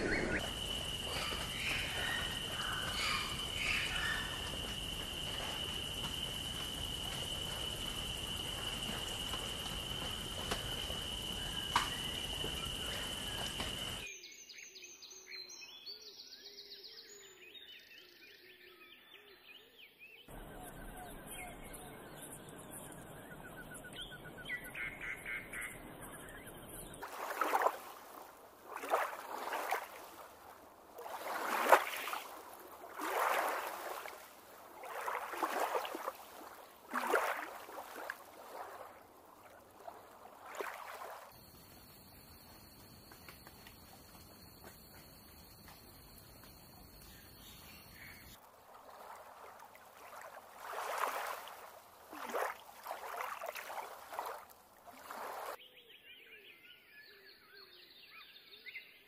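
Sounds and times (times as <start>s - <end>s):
faint bird chirps: 0.0s - 27.8s, 41.4s - 48.4s.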